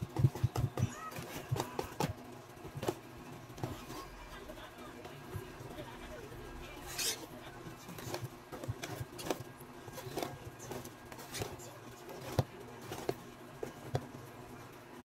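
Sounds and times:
whisk clicking and scraping bowl: 0:00.0 - 0:04.2, 0:06.8 - 0:14.2.

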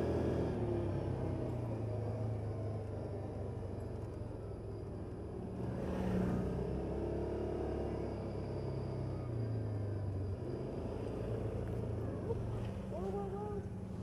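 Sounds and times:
engine running steadily: 0:07.0 - 0:14.0.

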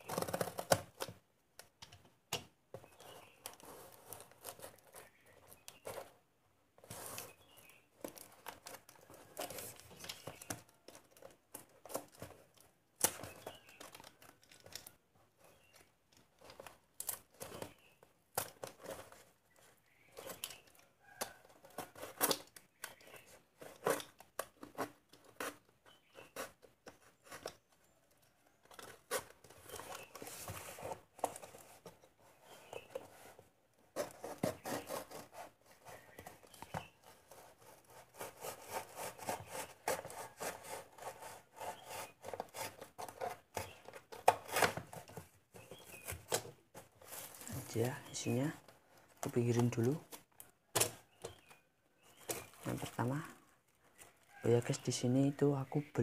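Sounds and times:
cardboard and tape tearing: 0:00.0 - 0:01.2, 0:16.4 - 0:54.3.

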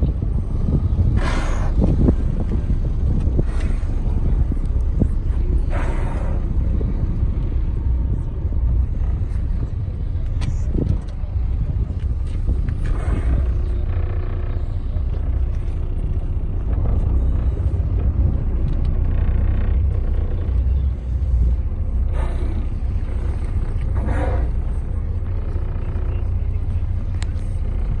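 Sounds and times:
boat low rumble: 0:00.0 - 0:28.0.

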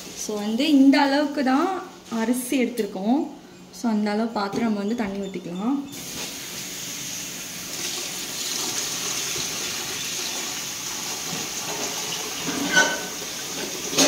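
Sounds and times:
water pouring and splashing: 0:07.7 - 0:12.6.

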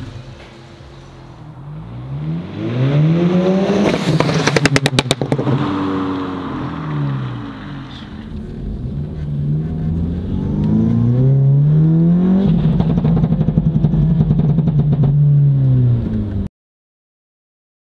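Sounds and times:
car engine revving: 0:00.0 - 0:16.5
exhaust crackles and pops: 0:03.8 - 0:05.6, 0:12.4 - 0:16.5.

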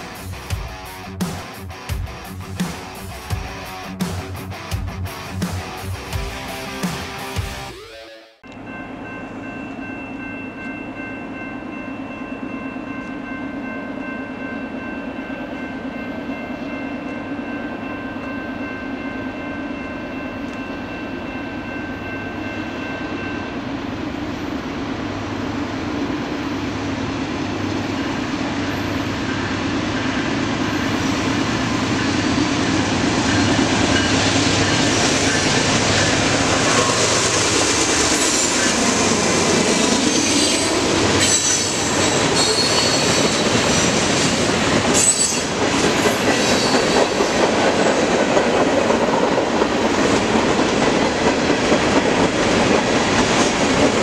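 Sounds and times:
diesel locomotive engine rumble: 0:18.6 - 0:54.0
train wheel noise: 0:23.0 - 0:54.0.

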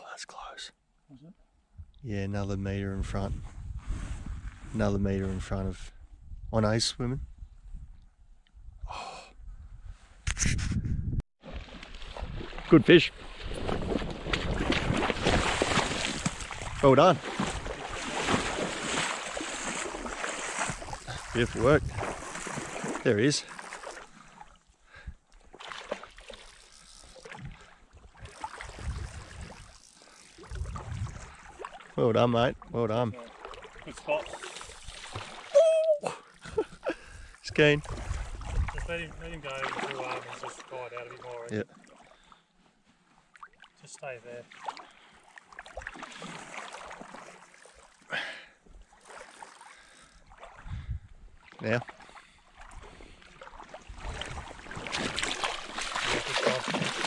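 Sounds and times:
rush of water: 0:11.4 - 0:24.1, 0:52.7 - 0:57.0
small waves lapping: 0:11.4 - 0:57.0
wading through shallow water: 0:11.4 - 0:57.0
low water rushes: 0:53.6 - 0:57.0.

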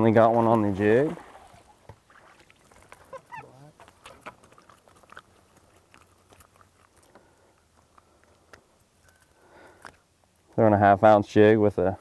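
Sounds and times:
faint small clicks and crackles: 0:03.8 - 0:10.6.

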